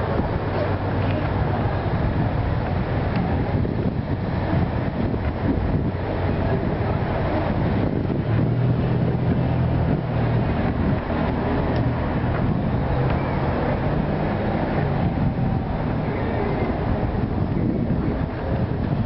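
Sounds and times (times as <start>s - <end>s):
street traffic rumble: 0.0s - 19.0s
vehicle engine hum: 0.0s - 19.0s.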